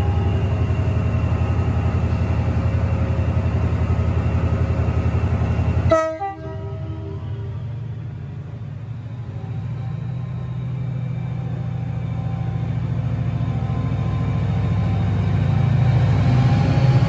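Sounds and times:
diesel locomotive engine throbbing: 0.0s - 17.0s
train horn blast: 5.9s - 7.6s.

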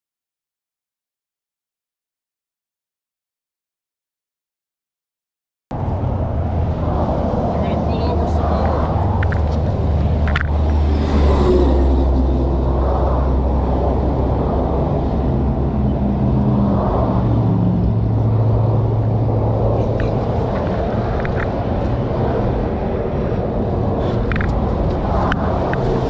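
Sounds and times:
highway traffic rumble: 5.7s - 26.0s.

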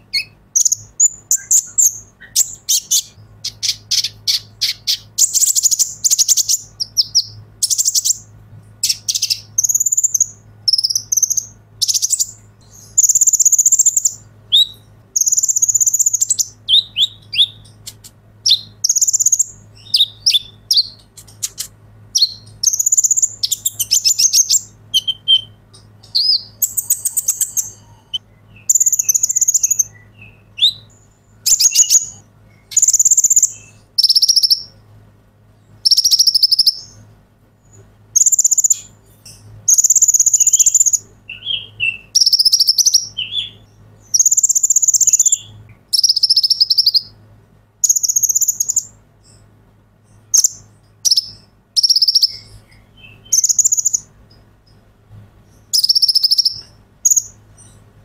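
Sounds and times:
sunbird singing buzzy trills: 0.0s - 58.0s
bird chips: 8.8s - 34.7s.

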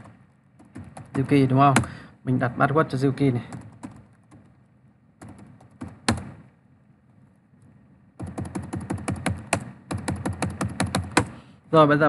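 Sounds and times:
keyboard typing: 0.0s - 1.9s, 3.5s - 4.6s, 5.2s - 6.5s, 8.2s - 11.4s.

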